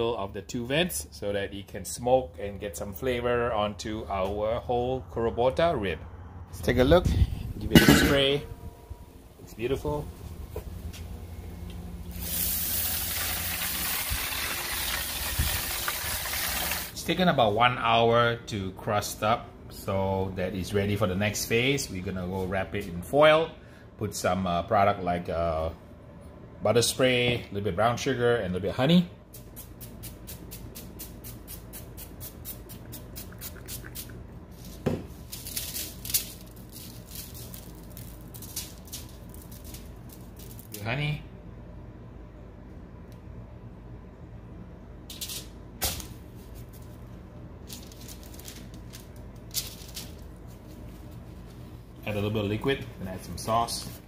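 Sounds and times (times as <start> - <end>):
water spray hissing on grill: 12.1 - 16.9
spray bottle spritzing: 29.4 - 34.2
sugar scattering rustle: 29.4 - 40.8, 47.6 - 51.6.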